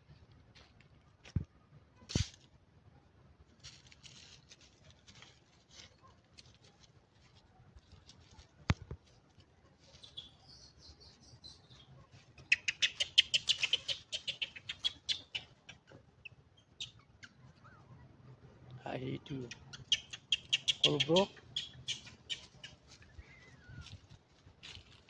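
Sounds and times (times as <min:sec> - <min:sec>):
faint rustles: 0:03.4 - 0:10.4, 0:21.9 - 0:25.0
monkey squeaking calls: 0:10.0 - 0:10.8, 0:12.4 - 0:17.8, 0:19.5 - 0:23.8.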